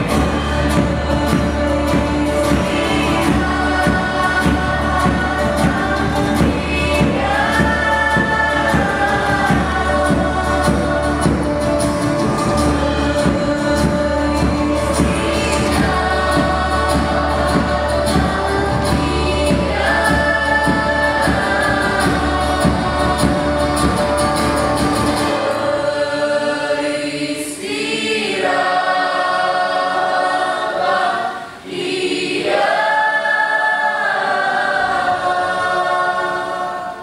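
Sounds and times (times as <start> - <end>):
percussion: 0.0 - 26.7
choir singing: 0.0 - 37.0.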